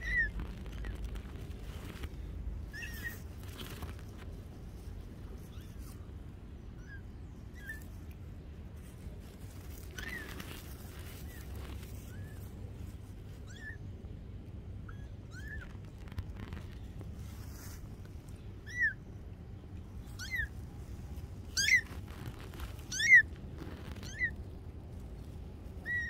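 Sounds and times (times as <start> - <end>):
kittens mewing: 14.8 - 16.6, 20.1 - 20.6, 21.4 - 24.6.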